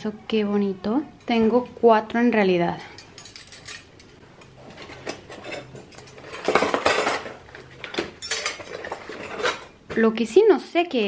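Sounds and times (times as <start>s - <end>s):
silver cutlery clinking: 3.0s - 9.7s.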